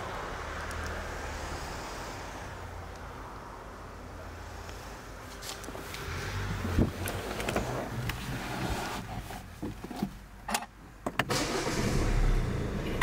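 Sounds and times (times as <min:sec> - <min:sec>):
car engine starting and running: 0:05.7 - 0:13.0.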